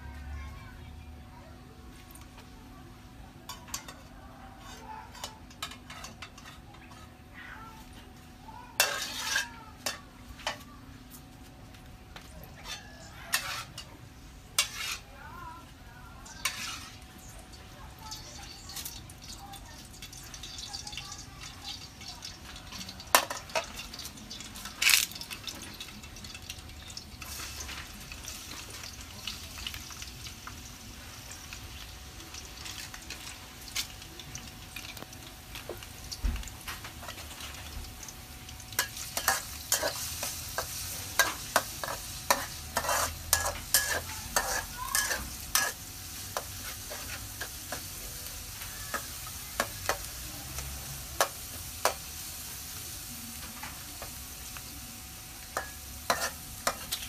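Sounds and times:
pots and utensils clinking: 0:03.4 - 0:07.2, 0:08.8 - 0:10.7, 0:12.4 - 0:14.0, 0:19.9 - 0:30.1, 0:32.6 - 0:52.1, 0:55.4 - 0:57.0.

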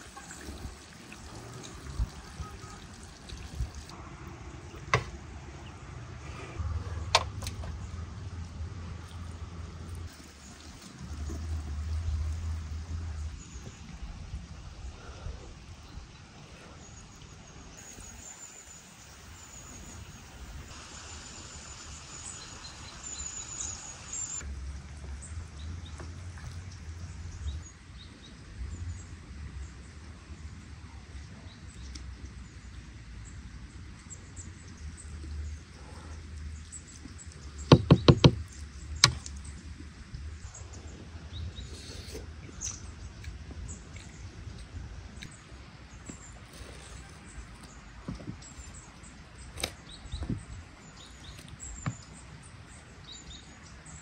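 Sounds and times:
small birds chirping: 0:31.4 - 0:54.0
sharp knocks: 0:37.7 - 0:38.4.

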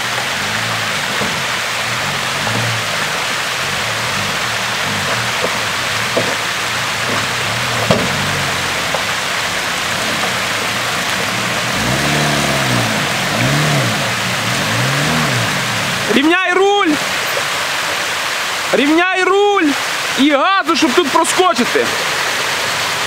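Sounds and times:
engine revving: 0:00.0 - 0:16.3
water rushing over rocks: 0:00.0 - 0:23.0.

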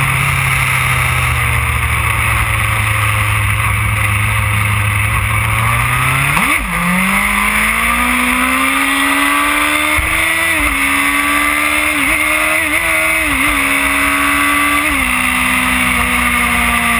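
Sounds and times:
motorcycle engine revving: 0:00.0 - 0:16.9.

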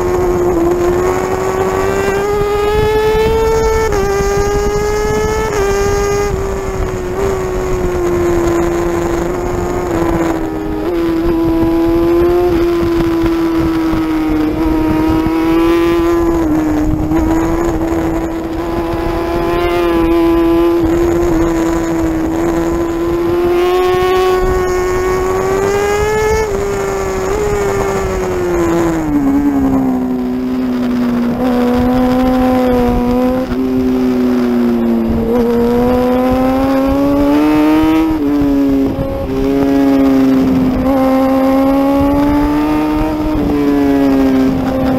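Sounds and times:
motorcycle engine at high revs: 0:00.0 - 0:44.9.

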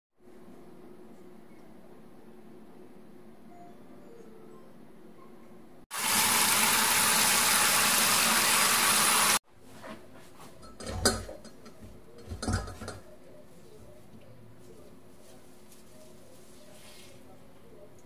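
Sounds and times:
running tap water: 0:05.9 - 0:09.4
plastic strainer clattering on steel bowl: 0:12.2 - 0:13.0.

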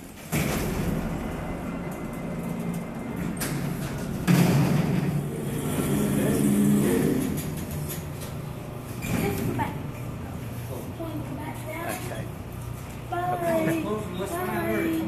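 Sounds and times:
elevator door sliding open: 0:00.0 - 0:09.9
elevator mesh gate lifting: 0:00.0 - 0:09.9
motor hum and rumble: 0:00.0 - 0:15.0.

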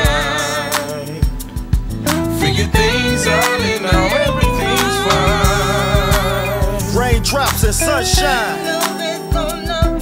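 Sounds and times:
bass line: 0:00.0 - 0:08.5
drum hits: 0:03.9 - 0:08.4.

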